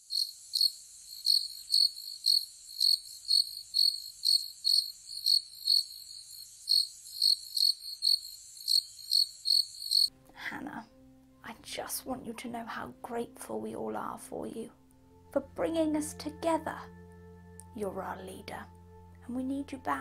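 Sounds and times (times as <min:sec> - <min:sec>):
cricket chirping: 0:00.0 - 0:10.1.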